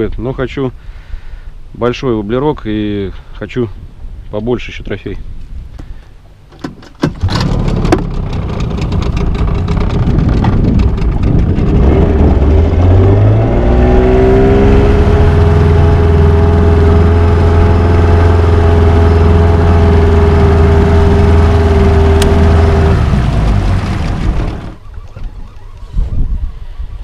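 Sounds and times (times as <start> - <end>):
motor knocks when starting: 6.6 - 11.8
outboard motor running: 7.1 - 25.9.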